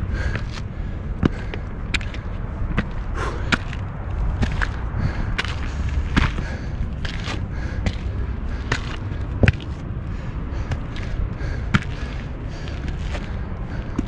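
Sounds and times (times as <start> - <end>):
low rumble: 0.0 - 14.0
footsteps on gravel: 0.2 - 10.0, 10.6 - 14.0.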